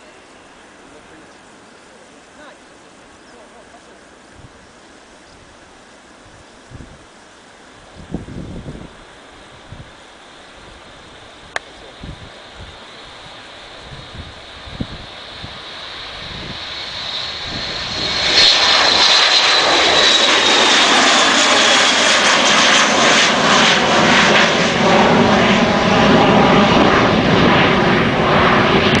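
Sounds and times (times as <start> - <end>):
high turbine whine: 0.0 - 29.0
jet taking off: 6.8 - 29.0.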